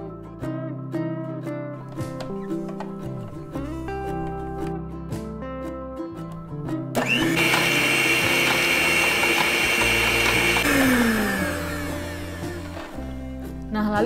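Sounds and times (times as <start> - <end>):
background music: 0.0 - 14.0
electric stand mixer whining: 7.0 - 13.2.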